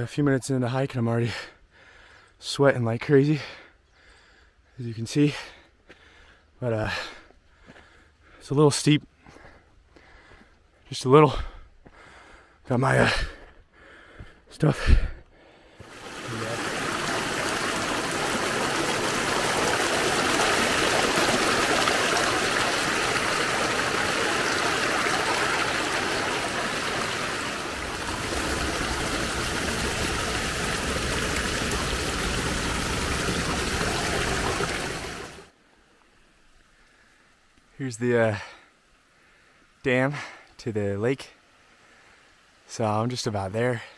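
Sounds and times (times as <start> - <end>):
stream rushing over rocks: 15.8 - 35.5.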